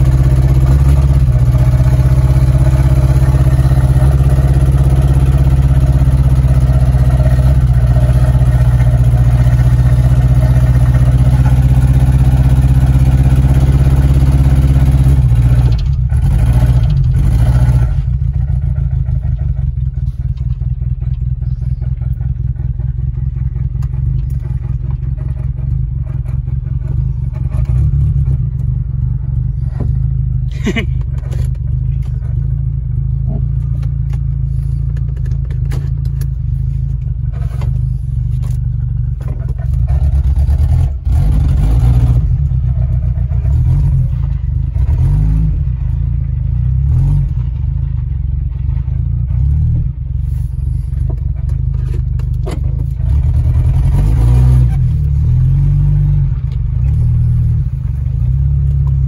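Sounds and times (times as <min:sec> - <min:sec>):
car engine rumble inside cabin: 0:00.0 - 0:59.0.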